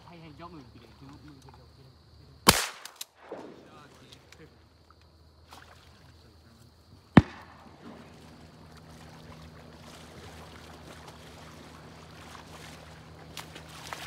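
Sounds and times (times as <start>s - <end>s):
wading through shallow water: 5.4s - 6.5s, 7.2s - 14.0s
sharp bang: 7.2s - 8.3s.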